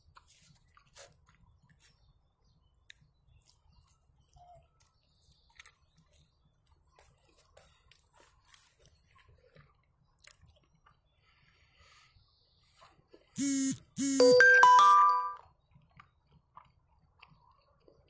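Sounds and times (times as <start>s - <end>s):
faint chewing mouth smacks: 2.8s - 11.0s, 15.7s - 18.0s.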